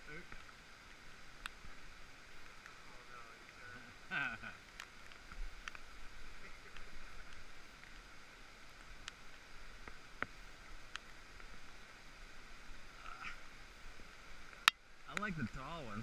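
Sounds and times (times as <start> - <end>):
rainforest ambience: 0.0 - 16.0.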